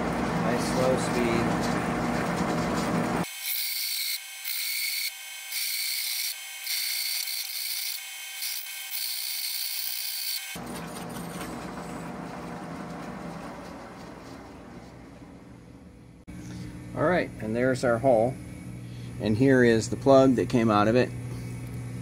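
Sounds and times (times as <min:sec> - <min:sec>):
low machine noise: 0:00.0 - 0:03.3, 0:10.6 - 0:22.0
hole saw grinding steel: 0:02.3 - 0:10.6.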